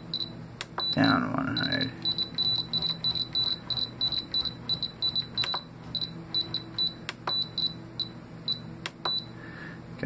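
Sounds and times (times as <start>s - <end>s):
short high beeps: 0.2s - 9.3s
sharp clicks: 5.1s - 5.7s.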